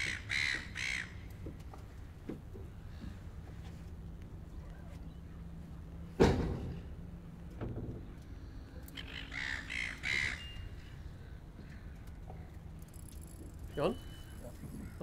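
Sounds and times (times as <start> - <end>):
bird calling: 0.0 - 2.1, 8.6 - 15.0.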